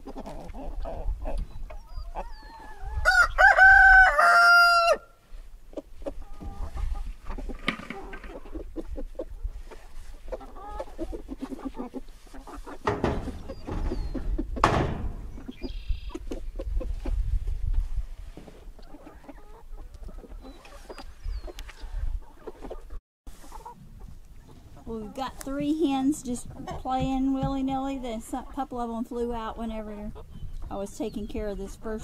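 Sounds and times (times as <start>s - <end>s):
hens clucking: 0.0s - 4.8s, 5.5s - 17.3s, 18.4s - 32.0s
rooster crowing: 3.0s - 5.1s
knocks and rustling in wire pen: 6.0s - 21.1s.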